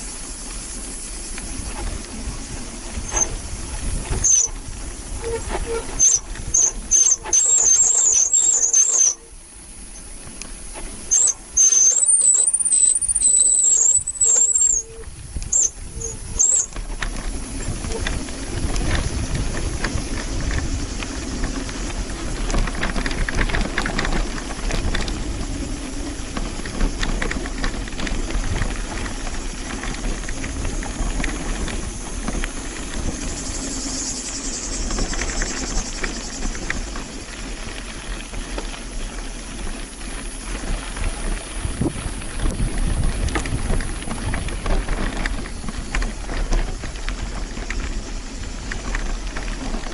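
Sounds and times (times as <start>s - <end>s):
bicycle brakes squealing: 0.0s - 41.7s
tyres and wind rumble: 0.0s - 49.9s.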